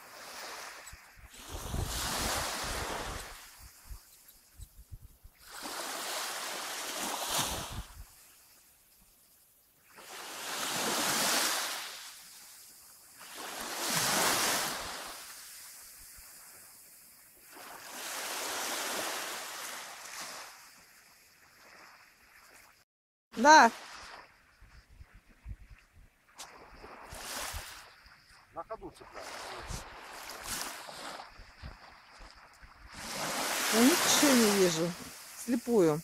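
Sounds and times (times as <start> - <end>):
sea waves washing on beach: 0.0 - 9.1, 9.8 - 22.8, 23.4 - 36.0
wind buffeting microphone: 0.8 - 5.5, 7.5 - 8.2, 24.5 - 27.8.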